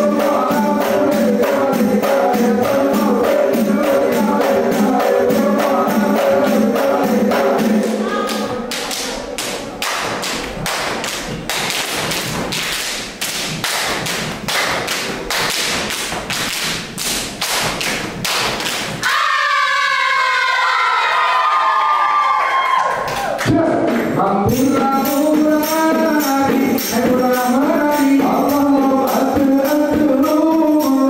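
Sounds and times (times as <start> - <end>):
group chanting: 0.0 - 9.8
rhythmic hand claps and body slaps: 0.0 - 19.1, 21.9 - 31.0
audience cheering and screaming: 19.0 - 23.4.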